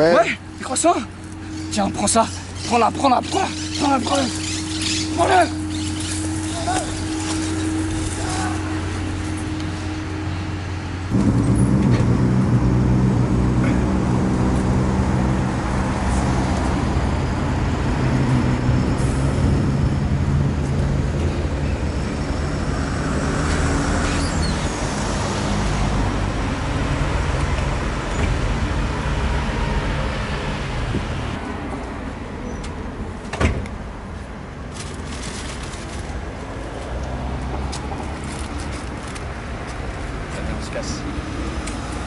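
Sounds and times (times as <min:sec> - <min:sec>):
street traffic: 0:00.0 - 0:42.0
vehicle engine running: 0:04.2 - 0:22.4.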